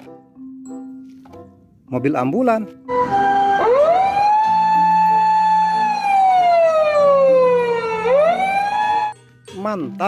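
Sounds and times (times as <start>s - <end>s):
electronic siren wailing: 2.9s - 9.2s.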